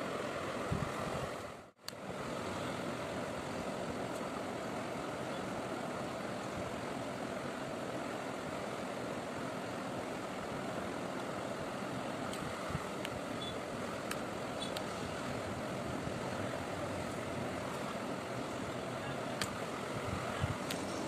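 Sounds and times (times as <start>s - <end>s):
steady hiss: 0.0s - 21.0s.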